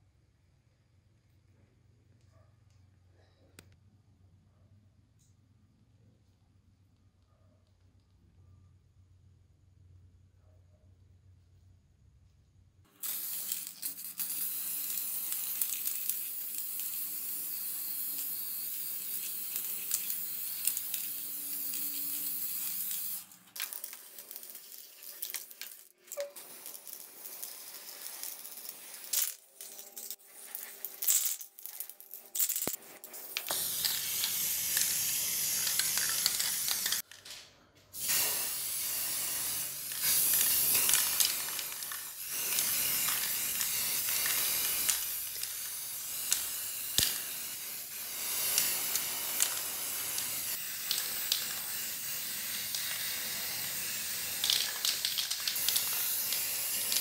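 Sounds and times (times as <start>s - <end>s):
spray paint can hissing: 12.9s - 37.1s, 38.0s - 57.0s.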